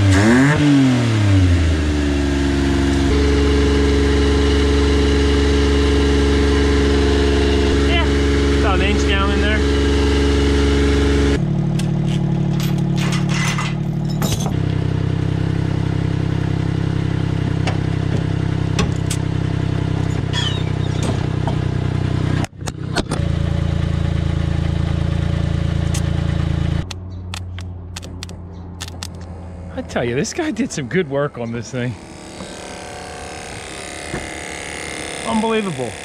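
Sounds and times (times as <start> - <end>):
small truck engine idling: 14.6 - 22.4.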